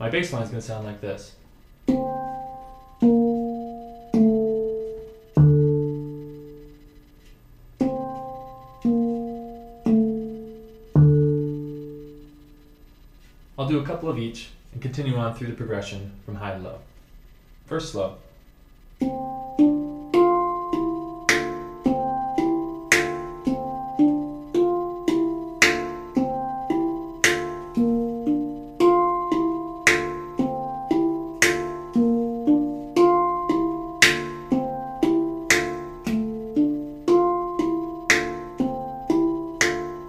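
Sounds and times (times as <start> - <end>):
handpan ringing notes: 1.8 - 6.8, 7.8 - 12.6, 19.0 - 40.0
percussive handpan rim strikes: 1.8 - 6.9, 7.8 - 12.7, 19.0 - 40.0.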